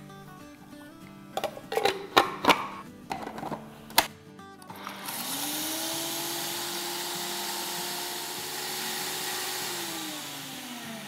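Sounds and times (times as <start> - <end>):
spice grinder motor grinding: 4.6 - 11.0.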